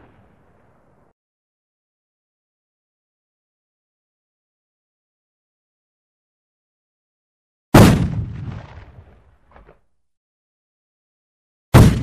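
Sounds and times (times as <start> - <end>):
loud rifle gunshot with echo: 7.8 - 8.9, 11.7 - 12.0.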